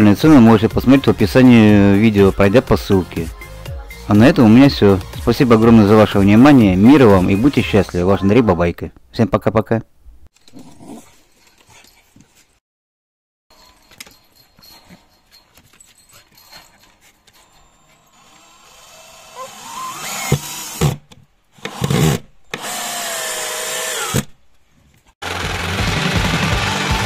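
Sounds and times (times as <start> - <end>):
music: 0.1 - 7.9, 25.2 - 27.0
cordless drill motor whining: 18.0 - 21.0, 21.6 - 24.3.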